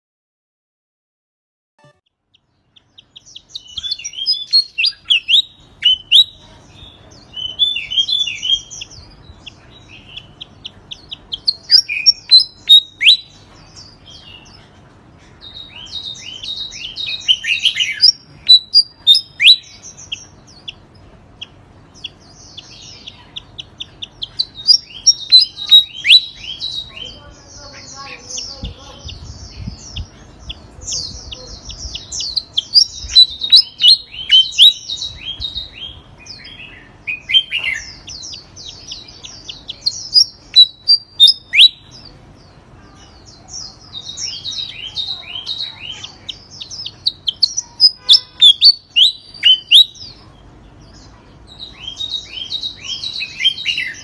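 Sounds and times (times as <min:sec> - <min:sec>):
songbird singing: 0:01.8 - 0:54.0.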